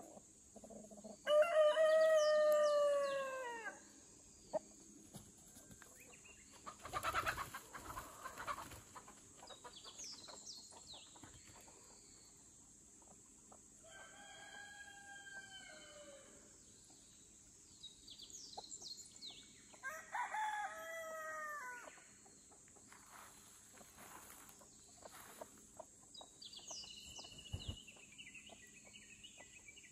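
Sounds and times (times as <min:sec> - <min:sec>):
rooster crowing: 0:01.2 - 0:03.8, 0:13.8 - 0:16.4, 0:19.8 - 0:22.0.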